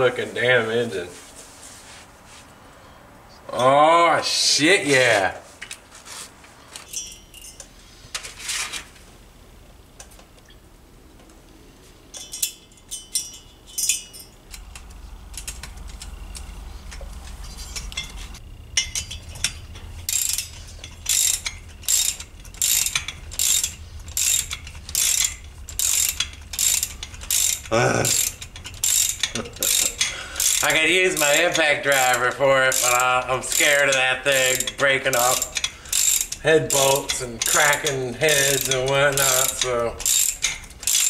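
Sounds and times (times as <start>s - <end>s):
ratchet wrench clicking: 12.2s - 41.0s.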